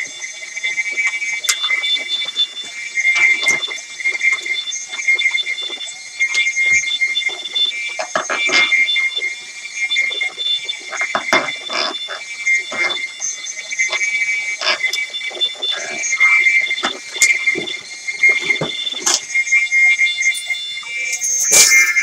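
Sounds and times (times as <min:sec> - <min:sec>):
shrill high electronic tones: 0:19.9 - 0:22.0
choppy percussive hits: 0:20.4 - 0:22.0.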